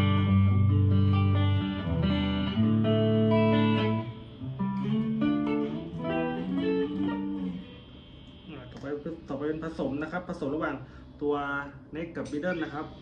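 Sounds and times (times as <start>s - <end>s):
clean electric guitar playing: 0.0s - 9.3s.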